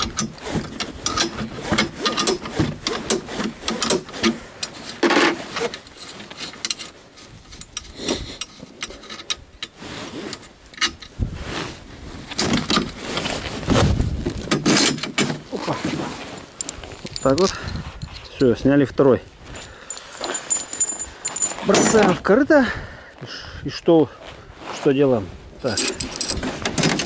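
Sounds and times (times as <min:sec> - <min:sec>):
spanner metal clicks and scrapes: 0:00.0 - 0:11.1, 0:25.6 - 0:27.0
jacket sleeves rubbing: 0:11.2 - 0:12.3, 0:15.5 - 0:17.2.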